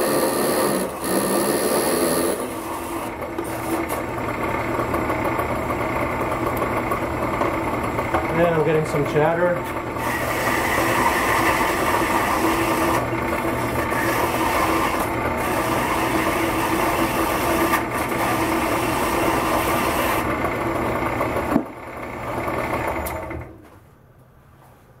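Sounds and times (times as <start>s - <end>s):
bandsaw cutting steel: 0.0s - 4.9s, 8.3s - 20.8s.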